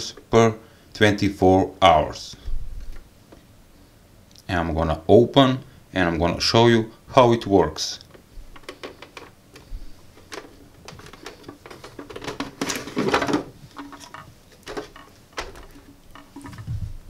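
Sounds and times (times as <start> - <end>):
plastic clicks and taps: 8.1 - 12.6.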